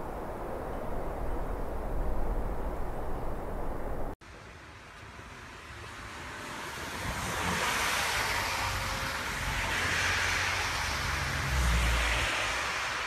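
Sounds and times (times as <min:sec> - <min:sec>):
low rumbling wind buffets: 0:00.0 - 0:04.2
wind gusting across microphone: 0:00.0 - 0:04.2.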